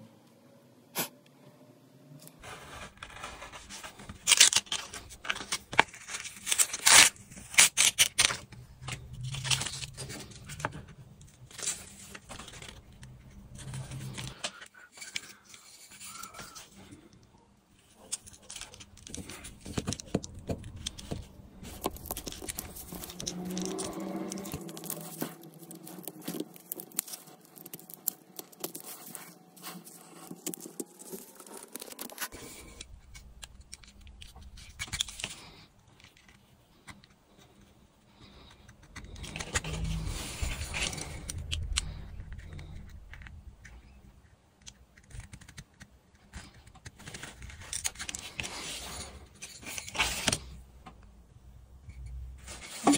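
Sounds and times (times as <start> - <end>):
tools clicking and scraping: 3.0 - 37.1, 44.6 - 50.6.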